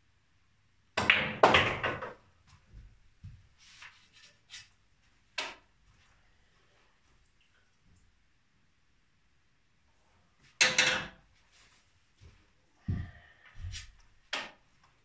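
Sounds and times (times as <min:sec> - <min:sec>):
billiard balls clacking: 0:01.0 - 0:02.3, 0:10.6 - 0:11.2
balls knocking and clicking: 0:01.0 - 0:02.9, 0:05.3 - 0:05.7, 0:10.6 - 0:11.3, 0:14.3 - 0:14.6.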